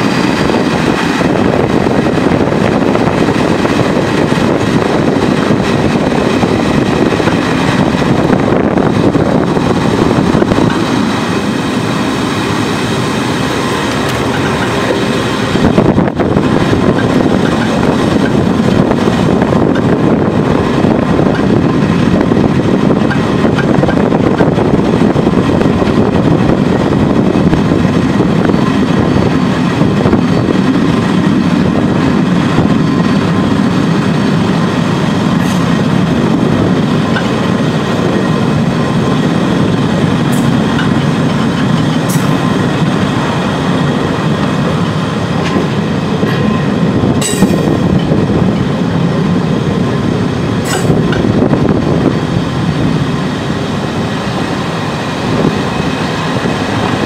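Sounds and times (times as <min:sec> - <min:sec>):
train jolt: 0:00.0 - 0:57.0
train wheels rumbling on rails: 0:00.0 - 0:57.0.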